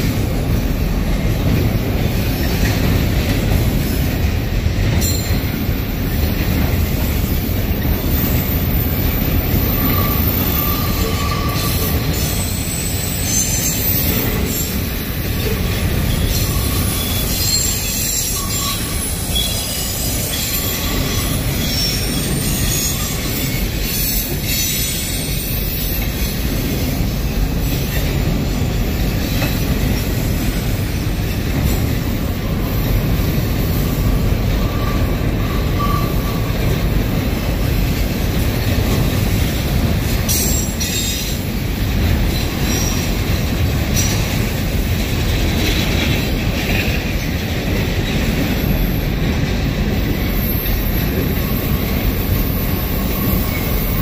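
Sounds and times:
freight train rumbling past: 0:00.0 - 0:54.0
faint wheel squeal: 0:07.8 - 0:14.8, 0:16.0 - 0:26.3, 0:34.5 - 0:36.6.

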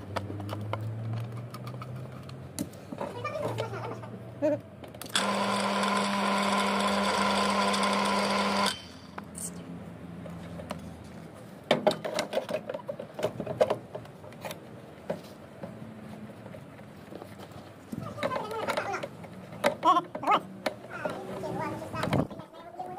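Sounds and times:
water pump motor humming: 0:05.1 - 0:09.0.

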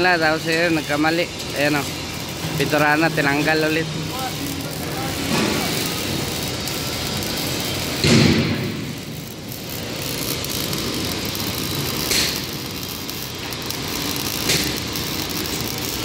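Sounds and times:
workshop din with welding: 0:00.0 - 0:16.0
loud thud: 0:08.0 - 0:08.9.

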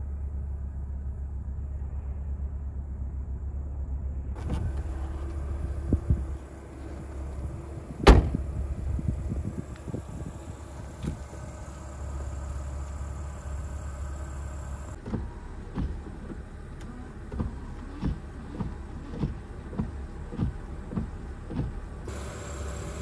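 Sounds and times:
car engine idling: 0:00.0 - 0:23.0
wiper blades thumping: 0:04.4 - 0:12.0, 0:14.9 - 0:23.0
windshield washer: 0:09.5 - 0:23.0.

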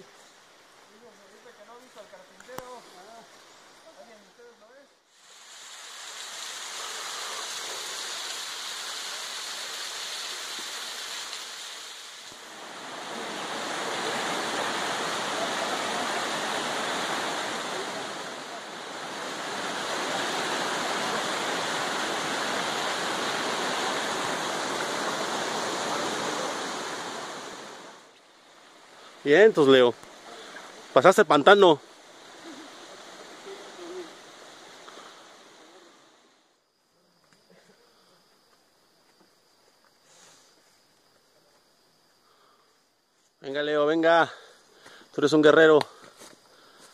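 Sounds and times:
waterfall rushing: 0:05.2 - 0:28.1.

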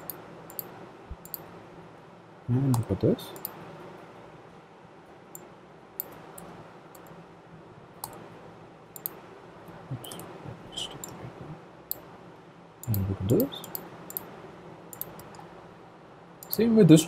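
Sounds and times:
computer mouse clicking: 0:00.0 - 0:01.5, 0:02.7 - 0:03.6, 0:08.0 - 0:08.2, 0:09.0 - 0:09.2, 0:12.8 - 0:14.3, 0:14.9 - 0:15.4
faint steady hiss: 0:00.0 - 0:17.0.

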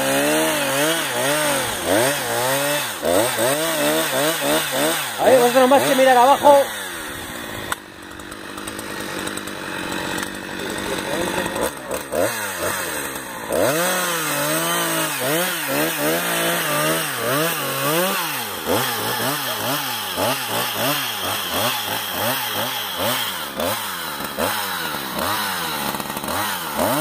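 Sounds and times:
chainsaw cutting tree: 0:00.0 - 0:27.0.

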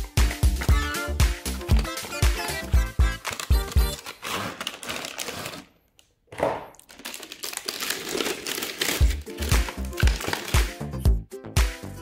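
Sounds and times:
background music with a beat: 0:00.0 - 0:04.0, 0:09.0 - 0:12.0
packaging crinkling and rustling: 0:01.8 - 0:06.1, 0:06.7 - 0:10.7.

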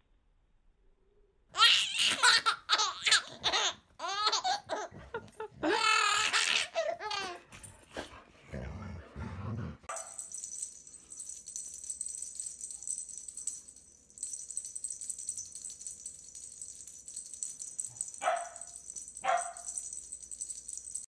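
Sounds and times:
high fluttering rattle: 0:09.9 - 0:21.0.

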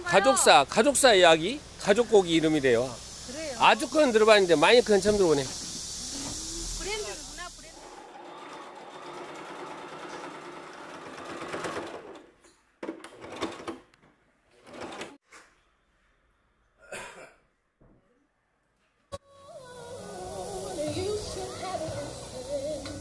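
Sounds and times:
sewing machine stitching: 0:07.8 - 0:13.9, 0:14.5 - 0:15.2.

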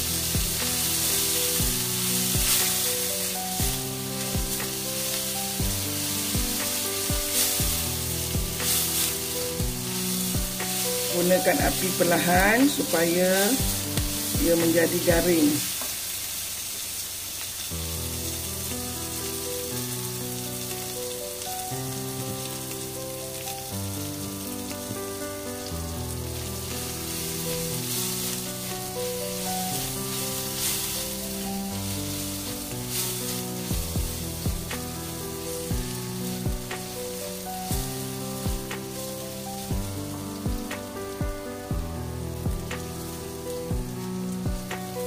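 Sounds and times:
background music: 0:00.0 - 0:15.8, 0:17.8 - 0:45.0
food sizzling in oil: 0:00.0 - 0:45.0
spatula scraping a wok: 0:00.5 - 0:12.1, 0:27.1 - 0:36.4.

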